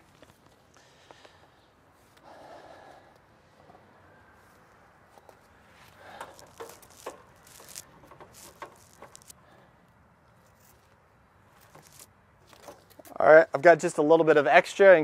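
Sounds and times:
plastic conduit rubbing and scraping: 6.1s - 9.4s, 11.6s - 13.2s.

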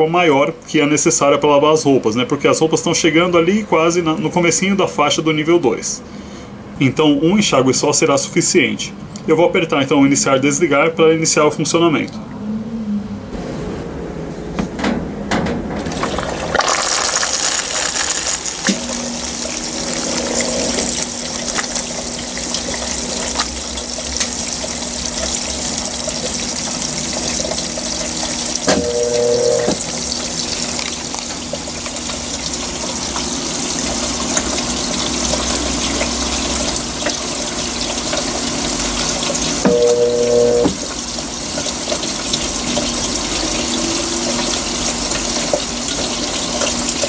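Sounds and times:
water rushing into drum: 15.7s - 47.0s
low hum: 18.6s - 23.3s, 28.6s - 30.0s, 39.6s - 40.9s.

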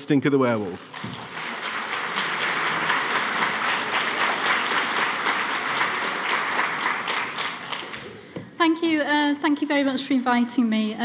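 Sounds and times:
audience applauding: 0.8s - 8.4s.

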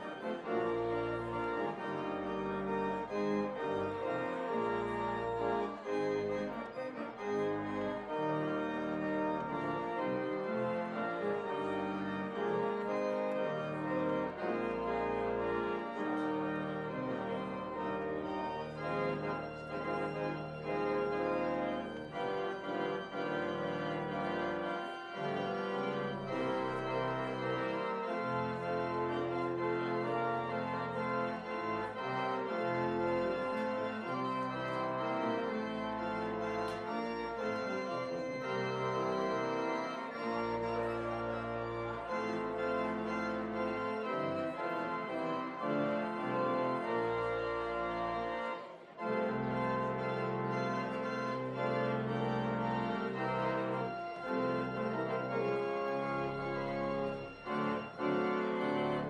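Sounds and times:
organ playing slow chords: 0.0s - 59.0s.

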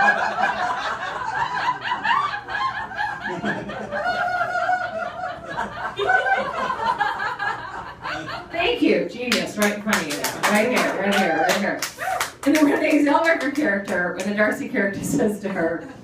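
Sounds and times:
audience laughing: 0.0s - 8.7s.

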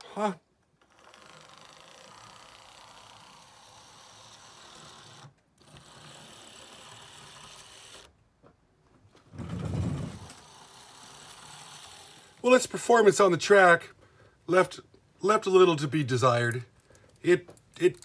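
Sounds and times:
model train motor whirring: 0.0s - 8.1s, 9.8s - 12.4s.

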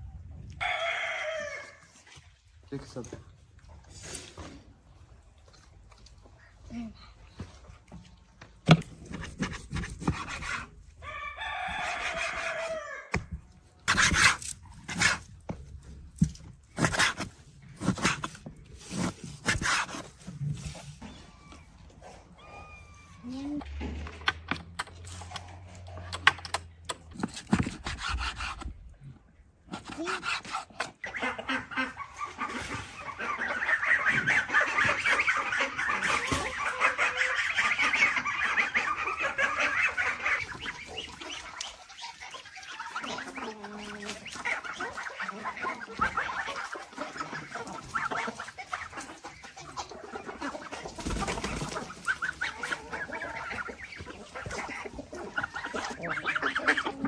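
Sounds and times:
poultry calling: 31.0s - 57.0s.

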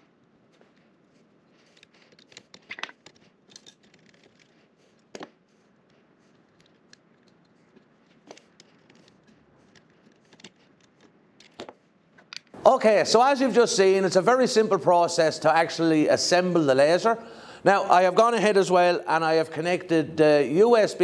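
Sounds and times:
cable clicks and rustles: 0.0s - 12.6s.

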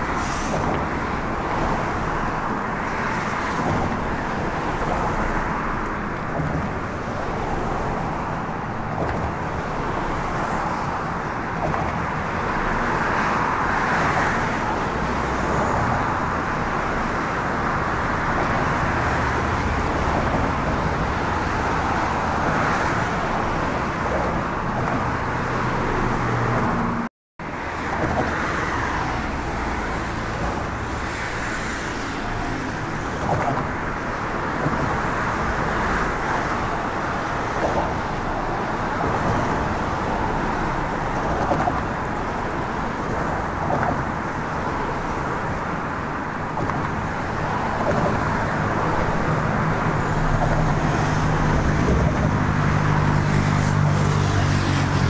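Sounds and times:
road traffic on bridge: 0.0s - 55.0s.

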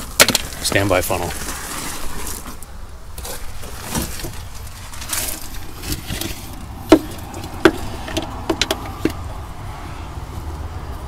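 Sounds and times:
soft rustles: 1.3s - 8.2s
metal tools knocking and clanking: 5.9s - 9.2s.

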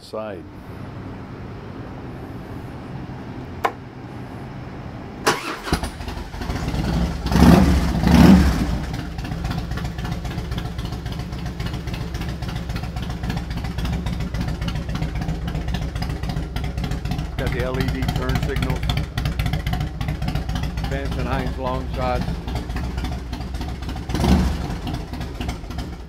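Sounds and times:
motorcycle engine cranking: 5.2s - 26.0s
motorcycle starter click: 5.3s - 6.2s
motorcycle engine revving and idling: 5.3s - 26.0s.

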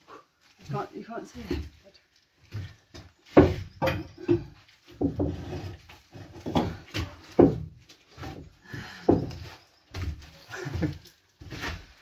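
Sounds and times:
heavy slabs knocking and scraping: 2.5s - 12.0s.

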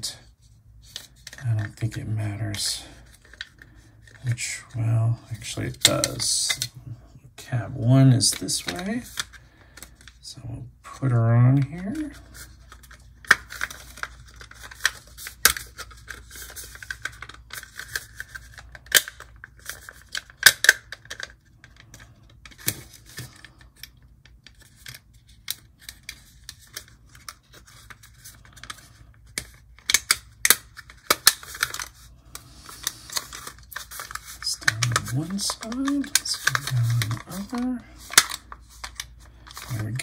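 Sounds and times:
plastic and metal parts clicking: 12.6s - 40.0s.

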